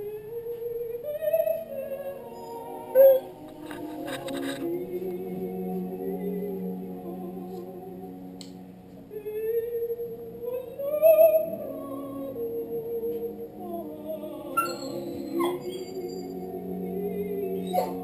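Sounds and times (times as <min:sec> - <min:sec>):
woman singing opera: 0:00.0 - 0:18.0
dog howling: 0:14.3 - 0:16.3, 0:17.6 - 0:18.0.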